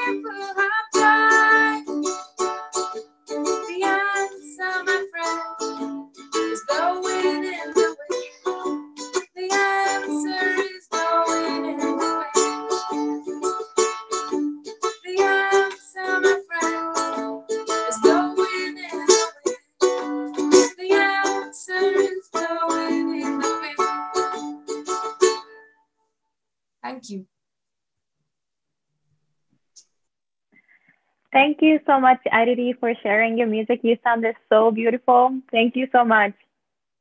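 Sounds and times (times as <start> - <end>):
woman singing: 0.0 - 2.0, 3.6 - 5.8, 6.4 - 8.5, 9.2 - 13.3, 15.0 - 19.6, 20.4 - 24.2
plucked acoustic strings: 0.0 - 25.5.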